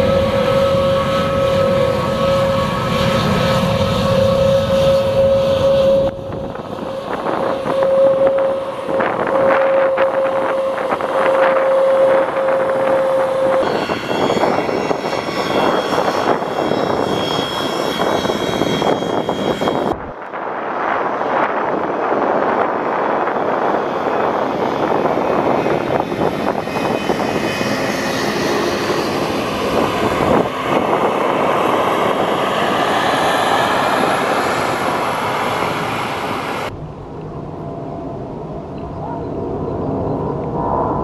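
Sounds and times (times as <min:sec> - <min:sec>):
mid-pitched engine tone: 0:00.0 - 0:20.3
jet engines humming: 0:00.0 - 0:41.0.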